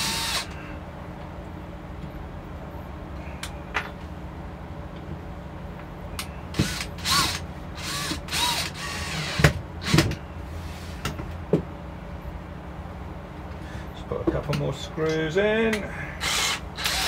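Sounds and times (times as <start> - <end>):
drill driving screws: 0.0 - 0.5, 6.6 - 10.1, 16.2 - 17.0.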